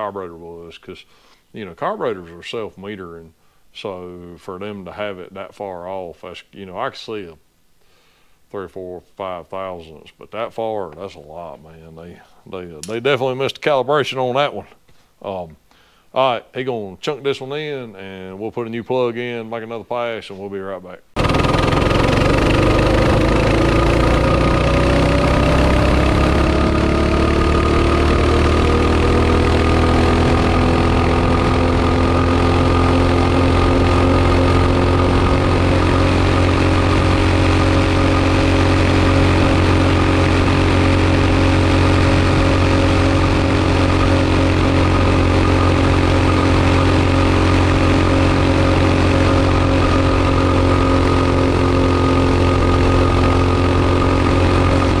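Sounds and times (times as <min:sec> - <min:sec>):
mini bike engine revving: 0:21.2 - 0:55.0.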